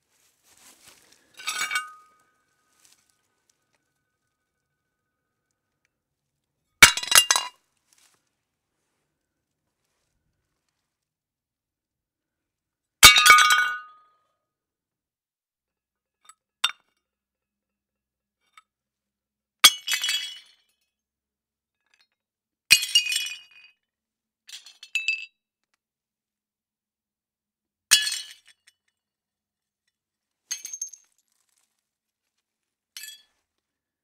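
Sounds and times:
shards clinking and scattering: 1.3s - 2.3s, 6.8s - 7.5s, 30.5s - 31.2s
china plates crashing: 1.4s - 2.1s.

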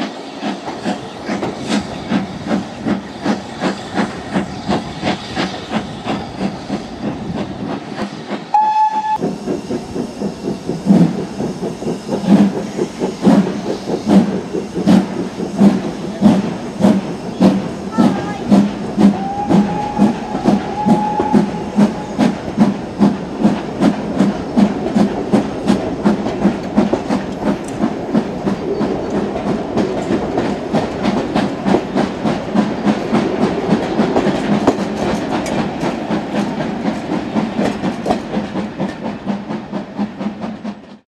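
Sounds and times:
steam locomotive chuffing: 0.0s - 41.0s
coaches rumbling on track: 11.0s - 39.1s.

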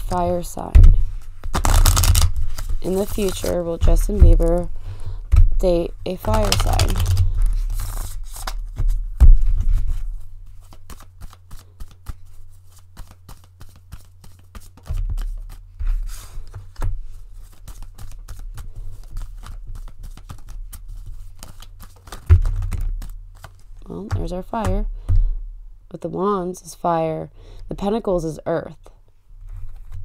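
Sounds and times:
cards shuffling: 1.1s - 4.7s, 6.1s - 24.6s.

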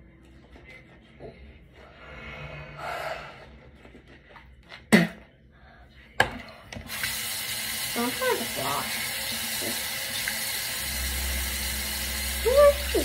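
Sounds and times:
toothbrush scrubbing teeth: 7.9s - 13.0s.

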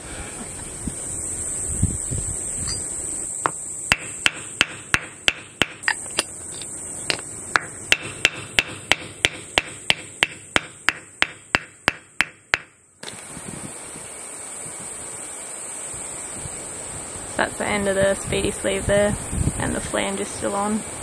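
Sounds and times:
hammer knocking on wooden block: 7.6s - 12.7s.

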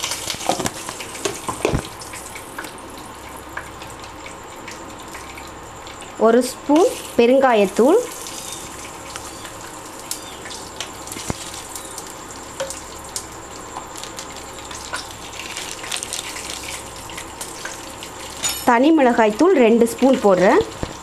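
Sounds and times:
crackles and pops: 0.0s - 6.2s, 8.0s - 18.4s
oil sizzling in a frying pan: 0.0s - 21.0s.

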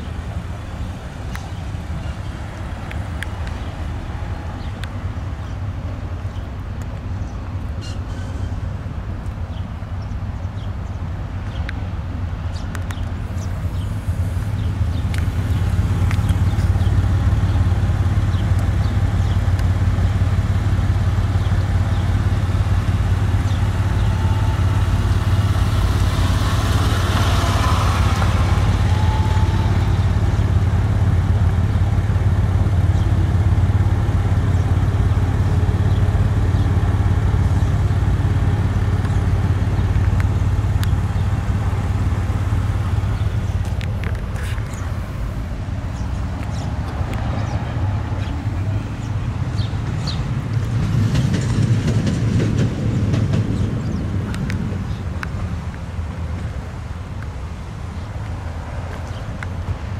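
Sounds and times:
car engine idling: 13.3s - 47.6s.

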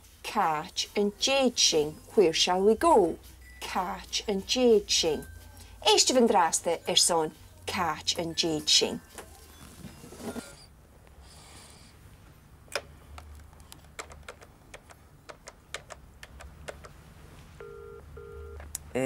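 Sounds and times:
telephone keys clicking: 12.8s - 17.0s
telephone ringing tone: 17.6s - 18.6s.

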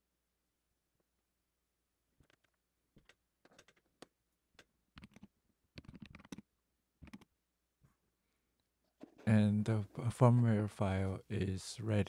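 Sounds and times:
faint typing on keyboard: 2.2s - 7.3s.

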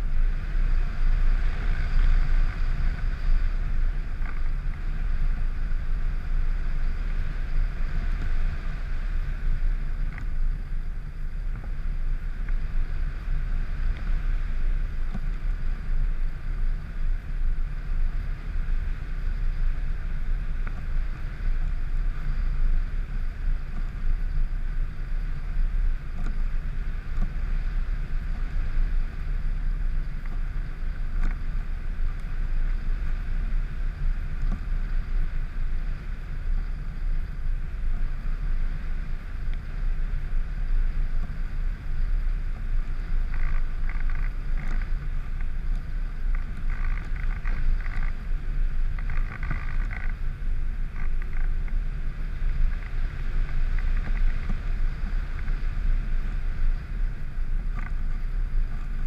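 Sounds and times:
constant aircraft drone: 0.0s - 59.0s
wind roaring over microphone: 0.0s - 59.0s.

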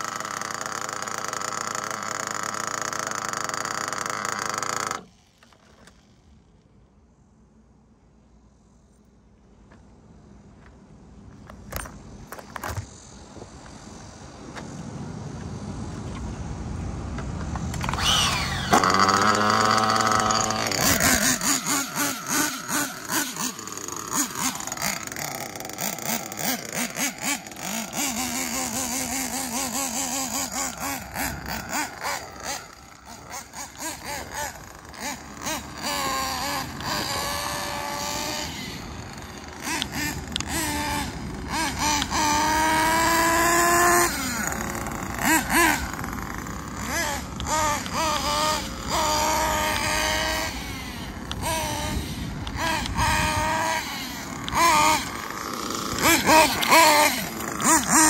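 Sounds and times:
small nitro engine revving: 0.0s - 7.0s, 17.4s - 58.0s
scattered clicks: 51.2s - 58.0s.

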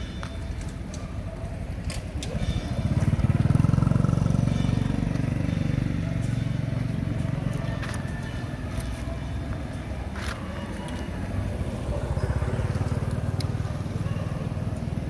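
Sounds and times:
motorbike engine passing: 2.2s - 8.4s, 11.0s - 15.0s.

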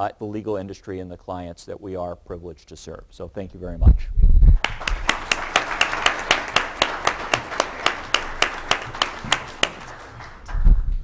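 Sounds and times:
audience applauding: 4.6s - 10.9s
sharp claps: 4.6s - 11.0s.

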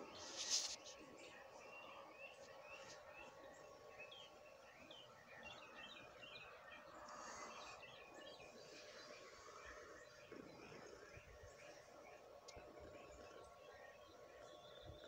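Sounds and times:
distant small birds chirping: 0.0s - 15.0s.

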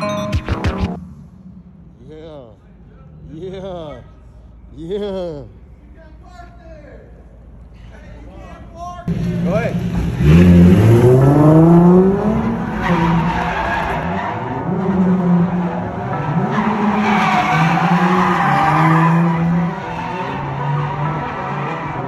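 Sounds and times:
car engine revving hard: 9.3s - 13.3s
tyres squealing and skidding: 12.2s - 22.0s.

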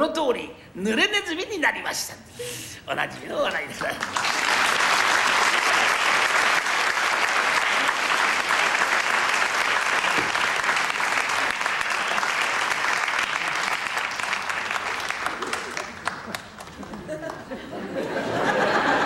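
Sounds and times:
audience applauding: 3.8s - 19.0s.

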